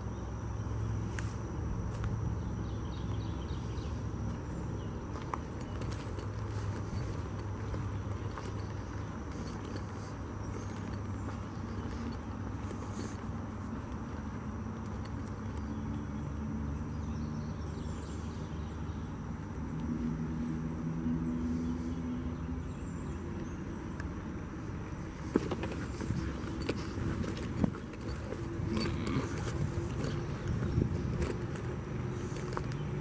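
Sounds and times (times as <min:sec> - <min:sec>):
footsteps on leafy dirt trail: 0:03.5 - 0:15.5, 0:25.0 - 0:33.0.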